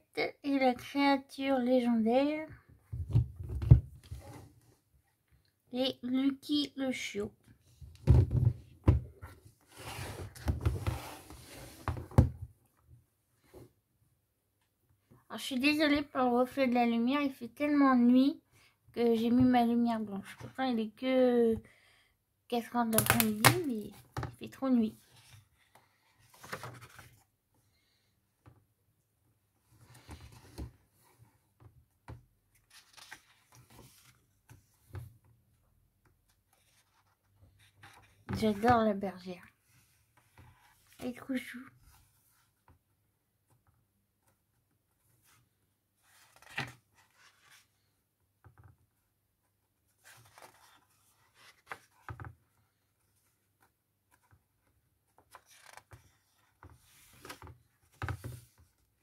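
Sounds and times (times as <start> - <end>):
books sliding on a table: 9.6 - 12.2
paper rustling: 50.0 - 52.1.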